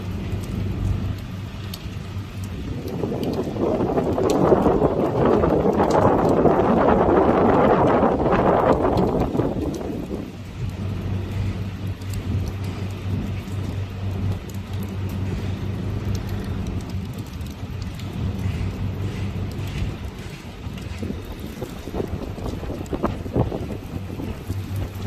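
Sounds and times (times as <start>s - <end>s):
rain: 0.0s - 25.0s
steady low hum: 0.0s - 25.0s
storm wind: 0.0s - 25.0s.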